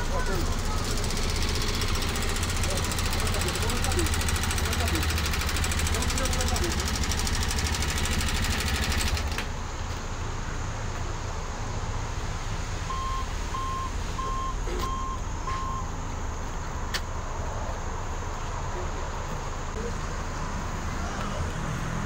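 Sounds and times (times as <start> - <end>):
vehicle engine rumbling: 0.0 - 22.0
short electronic beeps: 12.9 - 15.9.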